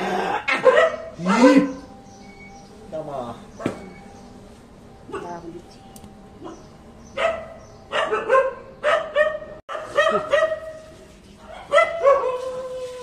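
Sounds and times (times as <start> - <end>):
dogs barking: 0.0 - 2.0, 3.5 - 4.0, 5.0 - 5.5, 6.4 - 13.0.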